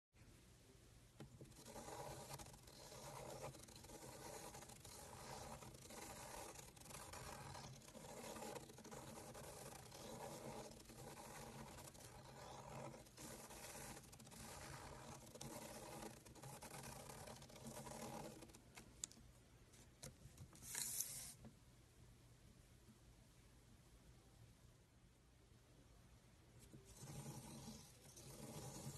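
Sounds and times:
pen scraping on paper: 0:01.3 - 0:18.6, 0:20.6 - 0:21.4, 0:26.7 - 0:28.9.

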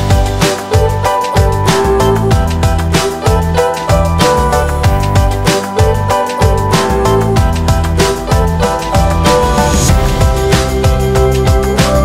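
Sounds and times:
upbeat background music: 0:00.0 - 0:12.0.

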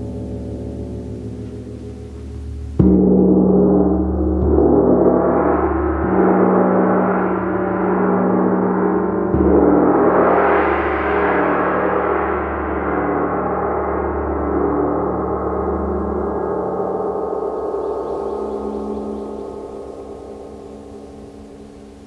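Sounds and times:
deep low hum: 0:00.0 - 0:22.0.

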